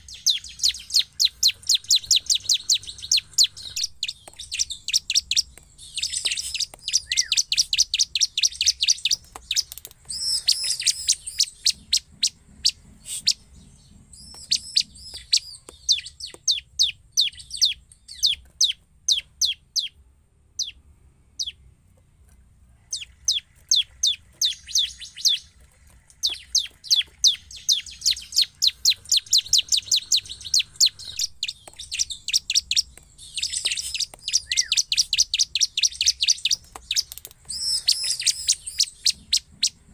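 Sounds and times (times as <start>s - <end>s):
bird singing sharp high chips: 0.0s - 20.0s, 22.9s - 39.9s.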